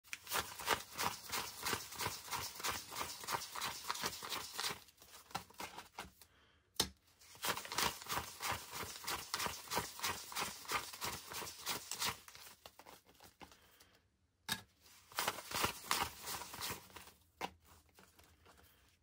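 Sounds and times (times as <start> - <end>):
banknotes flicked by hand: 0.1 - 4.8.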